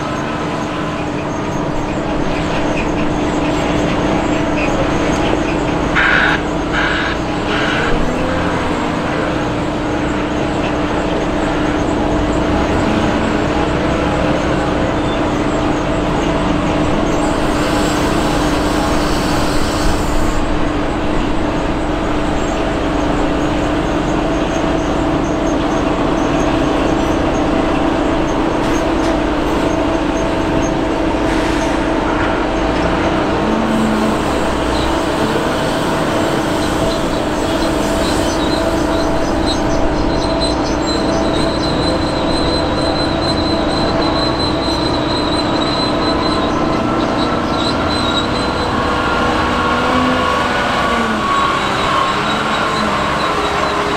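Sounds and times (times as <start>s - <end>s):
heavy machinery droning: 0.0s - 53.9s.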